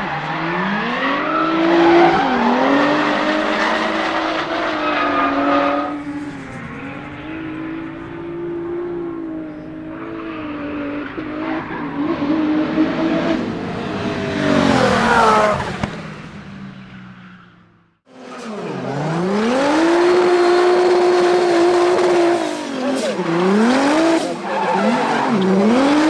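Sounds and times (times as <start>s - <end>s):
car engine revving high: 0.0s - 17.1s, 18.2s - 26.0s
tyres squealing: 22.6s - 26.0s.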